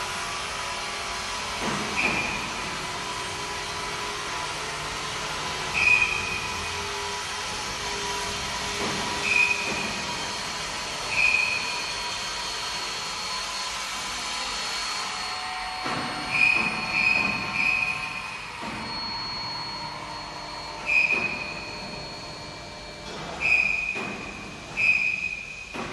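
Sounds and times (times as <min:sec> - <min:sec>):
induction furnace high-pitched whine: 0:00.0 - 0:25.9
short high squeals: 0:05.7 - 0:08.0, 0:09.0 - 0:25.8.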